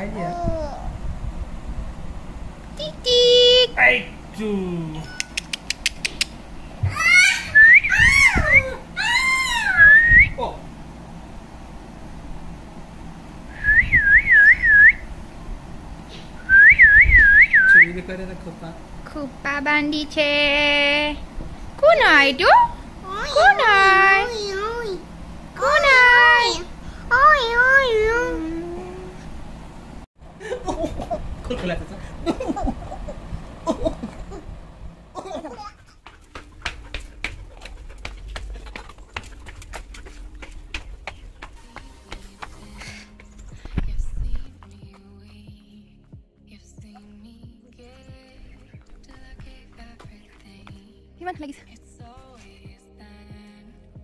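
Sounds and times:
high warbling whistle: 7.5s - 8.7s, 9.6s - 10.4s, 13.5s - 15.1s, 16.4s - 18.0s
person laughing: 30.4s - 31.3s, 32.2s - 34.5s, 35.2s - 35.8s.

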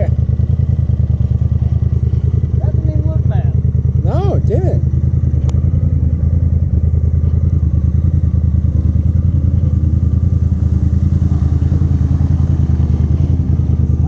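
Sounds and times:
engine idling with low throb: 0.0s - 14.0s.

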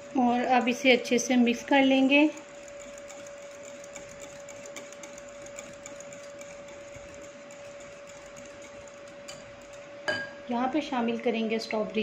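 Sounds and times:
whisk clicking against glass bowl: 0.3s - 9.9s.

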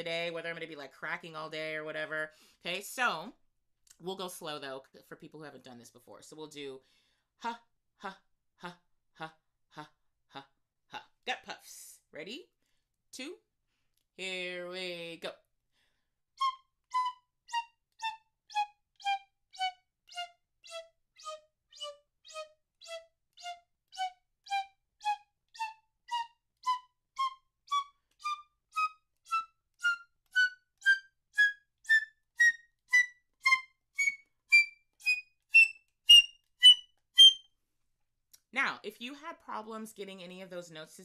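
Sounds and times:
piccolo playing short detached notes: 16.4s - 37.5s.

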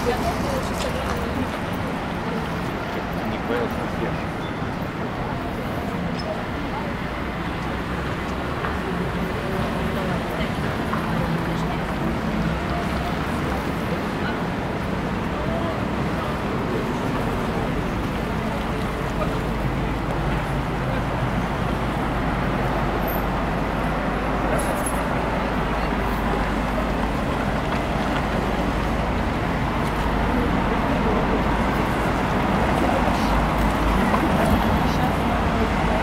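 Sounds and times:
city street traffic rumble: 0.0s - 36.0s.

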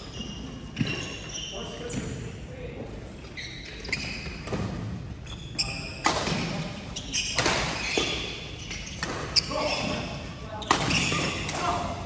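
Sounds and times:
rackets hitting shuttlecock: 5.9s - 10.0s, 10.6s - 12.0s.

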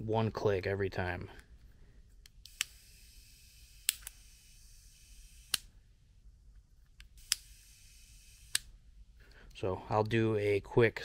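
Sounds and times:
soldering iron igniter clicks: 3.8s - 4.2s.

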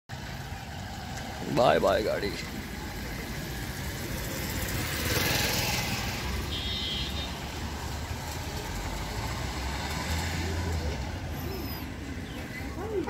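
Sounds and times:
car engine pulling away: 7.6s - 13.0s.

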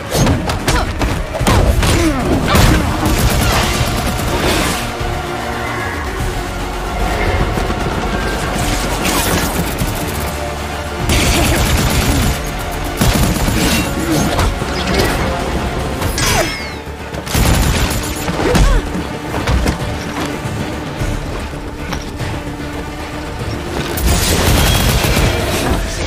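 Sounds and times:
dramatic music: 0.0s - 26.0s
rapid gunfire-like bursts: 2.6s - 5.0s, 7.0s - 14.0s, 17.2s - 18.4s, 24.0s - 25.8s.

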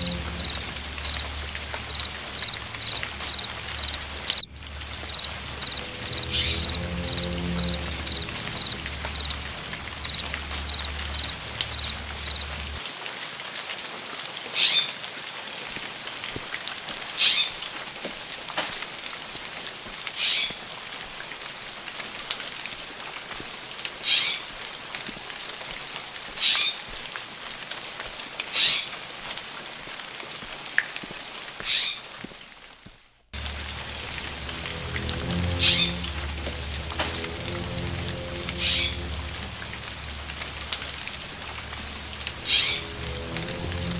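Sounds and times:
low drone: 0.0s - 12.8s, 33.4s - 43.9s
rain hissing in foliage: 0.0s - 43.9s.

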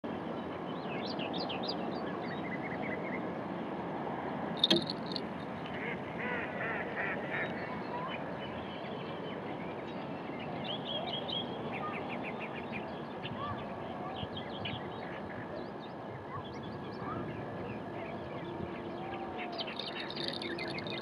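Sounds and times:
birds calling: 19.6s - 21.0s.

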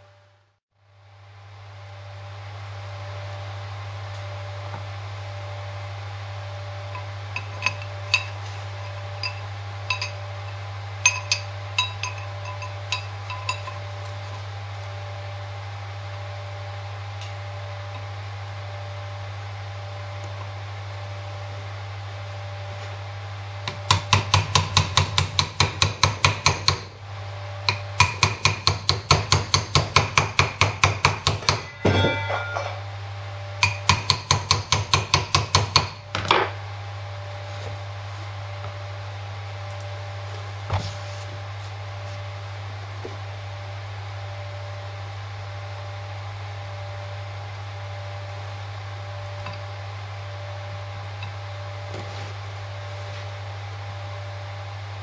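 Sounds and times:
hammer tapping metal: 6.9s - 13.8s, 23.7s - 26.9s, 27.7s - 32.8s, 33.6s - 36.4s.

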